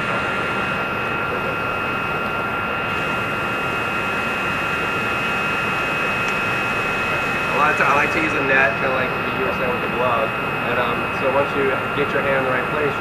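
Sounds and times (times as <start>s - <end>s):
machine drone with high whine: 0.0s - 13.0s.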